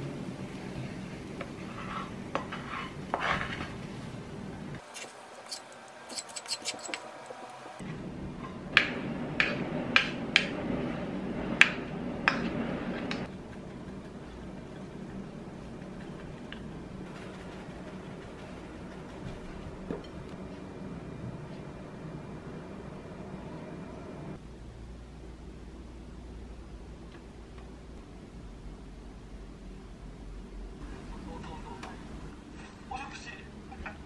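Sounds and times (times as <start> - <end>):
wooden spoon scraping frying pan: 1.4 - 4.0, 4.8 - 7.5.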